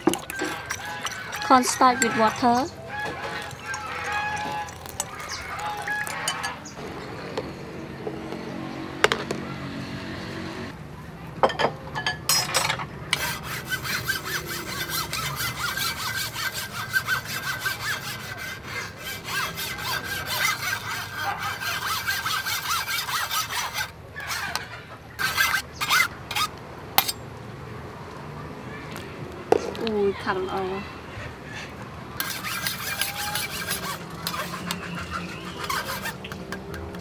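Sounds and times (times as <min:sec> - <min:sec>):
utensil scraping a cooking vessel: 0:00.0 - 0:07.4, 0:12.4 - 0:24.6, 0:25.2 - 0:27.2, 0:32.2 - 0:37.0.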